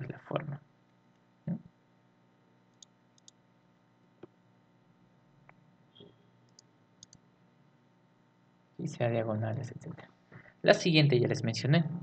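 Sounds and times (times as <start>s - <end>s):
computer mouse clicks: 2.7s - 3.4s, 6.0s - 7.2s.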